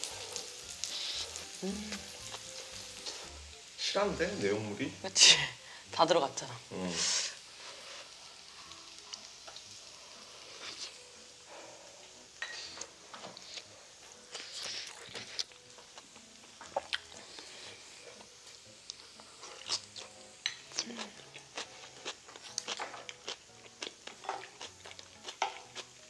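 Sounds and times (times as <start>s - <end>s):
rice sizzling on grill plate: 0.0s - 26.0s
chewing: 8.5s - 11.0s, 12.7s - 26.0s.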